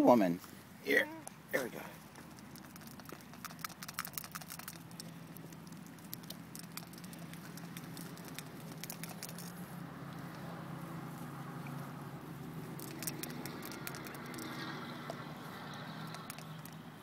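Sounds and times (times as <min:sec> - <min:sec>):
duck bills clicking and tapping: 0:02.0 - 0:09.6, 0:12.7 - 0:17.0.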